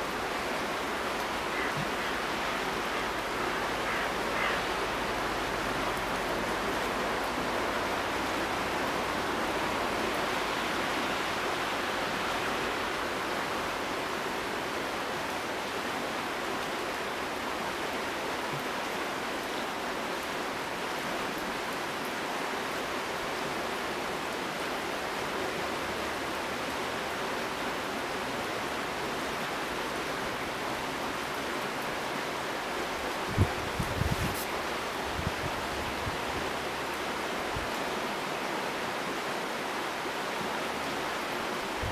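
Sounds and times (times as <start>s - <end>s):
steady rushing noise: 33.3s - 36.2s.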